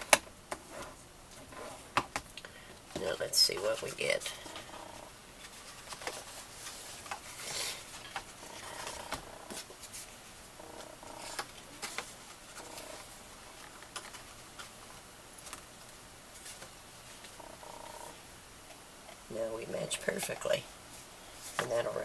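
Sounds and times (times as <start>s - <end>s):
cardstock rustling and scraping: 3.4s - 14.8s.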